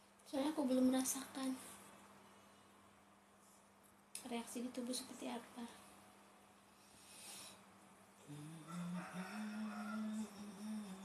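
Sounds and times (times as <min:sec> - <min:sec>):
woman humming: 0:08.2 - 0:11.0.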